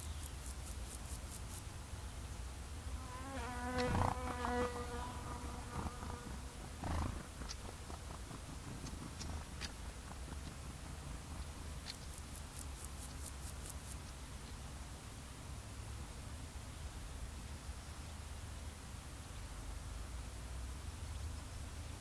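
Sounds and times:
flying insect buzzing: 2.9s - 9.4s, 11.8s - 14.1s
low wind rumble: 3.9s - 11.9s
faint high ticks: 7.4s - 10.7s, 11.4s - 14.6s.

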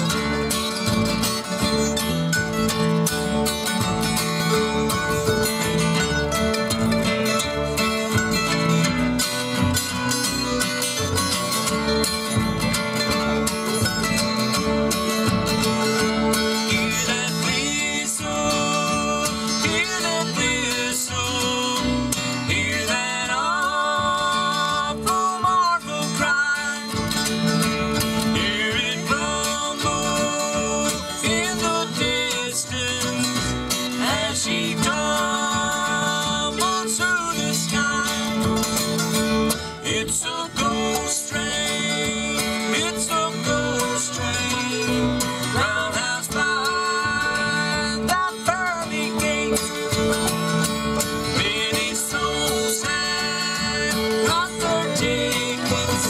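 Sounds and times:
sliding high melody: 0.0s - 20.6s
bluegrass band playing: 0.0s - 56.0s.

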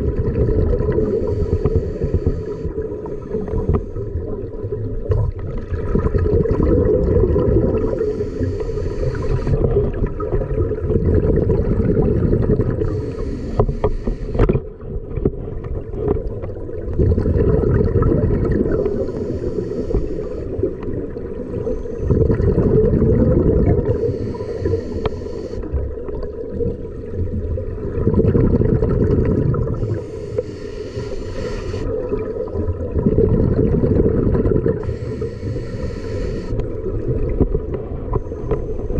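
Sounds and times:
exhaled bubbles rumbling: 0.0s - 38.9s
regulator breath hiss: 1.0s - 3.8s, 7.9s - 9.6s, 12.8s - 14.4s, 18.8s - 20.6s, 23.9s - 25.7s, 29.8s - 31.9s, 34.8s - 36.6s.

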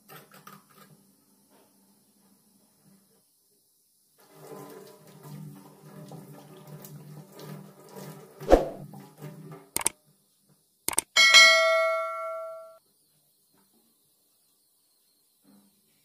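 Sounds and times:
bell ding: 11.2s - 12.8s.

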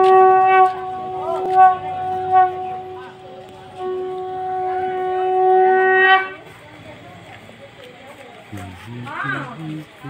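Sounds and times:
conch shell blown: 0.0s - 6.6s.

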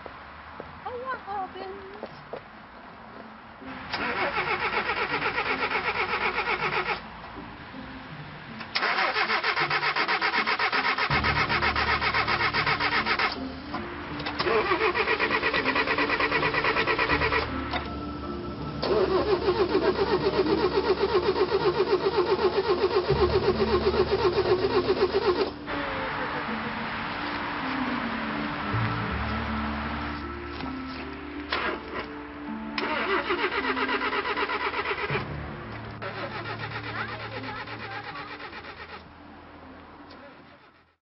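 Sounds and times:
car starter cranking engine: 3.7s - 7.1s, 8.6s - 18.0s, 18.6s - 25.9s, 31.5s - 39.1s.

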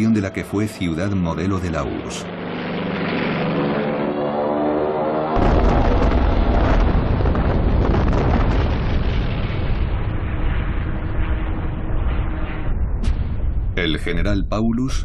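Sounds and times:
dive bomber engine droning: 0.0s - 15.0s
heavy bomb blast: 5.4s - 14.6s
deep rumble of explosions: 5.4s - 15.0s.

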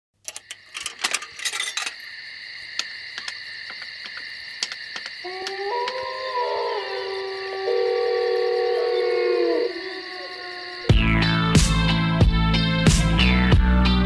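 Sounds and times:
coins dropping into payphone: 0.2s - 2.0s.

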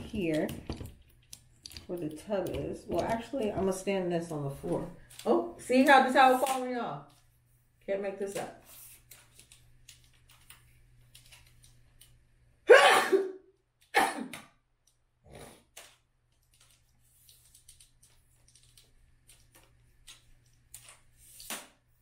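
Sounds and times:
woman sneezing: 12.7s - 13.4s.

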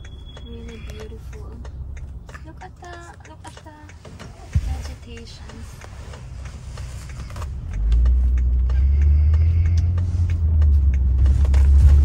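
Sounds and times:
car engine inside cabin: 0.0s - 12.0s
road rumble: 0.0s - 12.0s.

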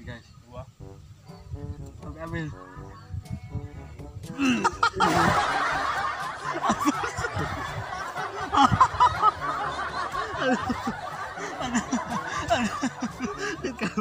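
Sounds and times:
young men laughing: 4.3s - 14.0s.

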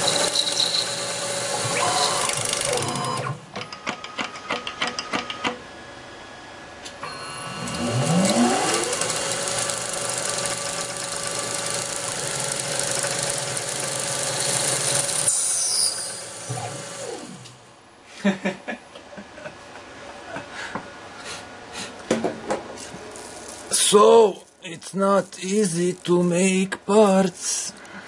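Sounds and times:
spindle motor whine: 0.0s - 3.4s, 7.0s - 17.6s
lathe clicking: 8.0s - 15.3s.

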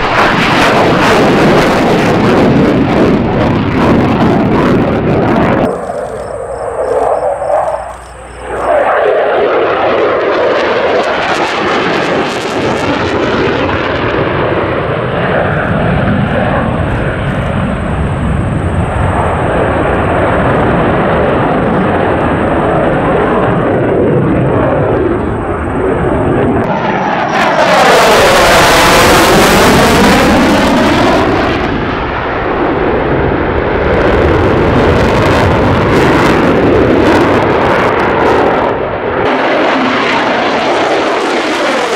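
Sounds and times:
fighter jet engines roaring: 0.0s - 41.9s
jet passing with phasing whoosh: 5.4s - 10.6s.

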